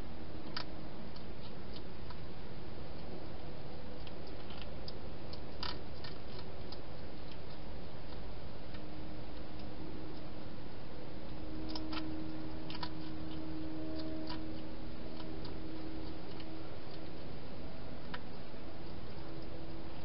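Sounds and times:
hedgehog chewing crunches: 0:03.9 - 0:10.3, 0:11.3 - 0:17.4.

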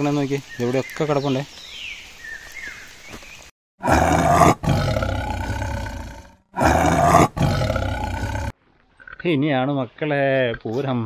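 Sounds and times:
tiger roaring: 0:03.8 - 0:08.6.

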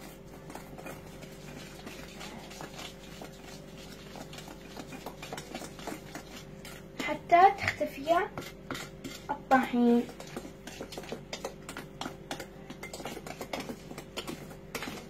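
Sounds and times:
spatula stirring batter in metal bowl: 0:00.0 - 0:15.0.

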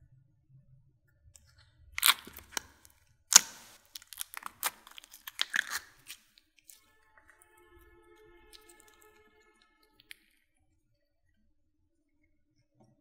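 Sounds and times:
sticky slime pops and crackles: 0:02.0 - 0:06.8.

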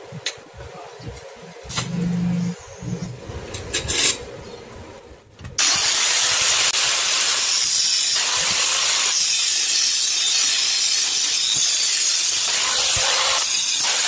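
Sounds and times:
angle grinder whining: 0:05.6 - 0:14.0.

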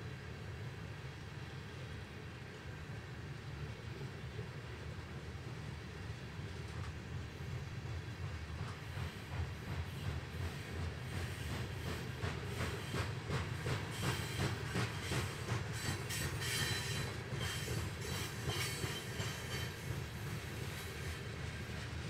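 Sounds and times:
freight train rumbling past: 0:00.0 - 0:22.0
faint high wheel squeal: 0:13.9 - 0:21.3.

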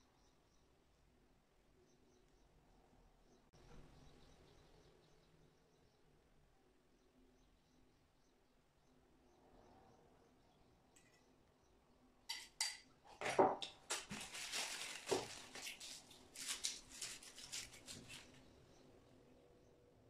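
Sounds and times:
packaging crinkling: 0:13.6 - 0:18.4.

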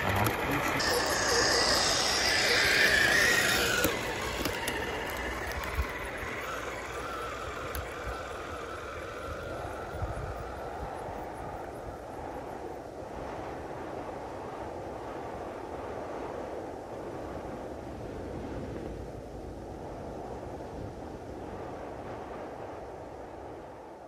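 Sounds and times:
toy car electric motor whining: 0:00.2 - 0:10.6.

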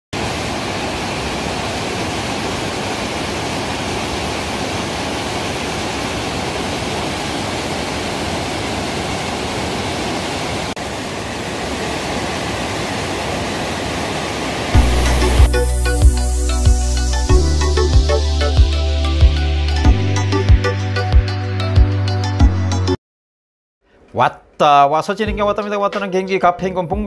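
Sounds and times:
waterfall rushing: 0:00.2 - 0:19.8.

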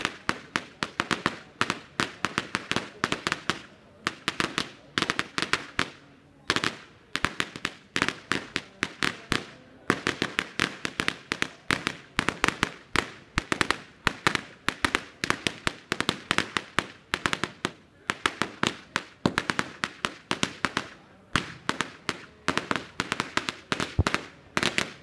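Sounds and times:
firecrackers exploding: 0:00.0 - 0:25.0.

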